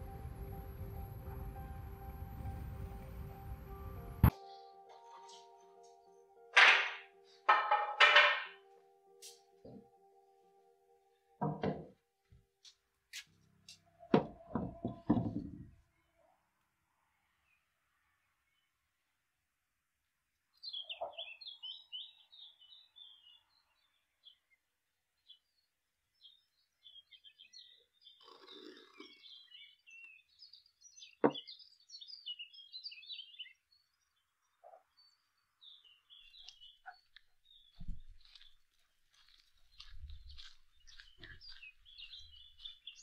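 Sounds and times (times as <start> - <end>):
birds chirping: 20.4 - 43.0.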